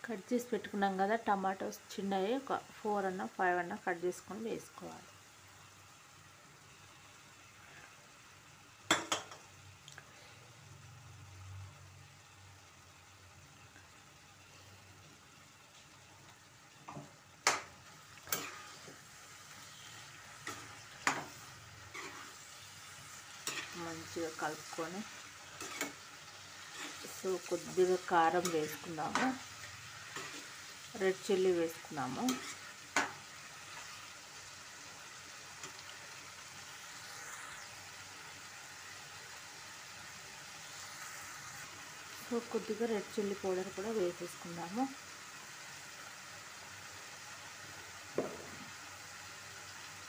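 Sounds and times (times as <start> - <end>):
faint frying sizzle: 0.0 - 50.0
spatula knocking and scraping pan: 20.4 - 22.3, 25.6 - 26.0, 32.3 - 33.2.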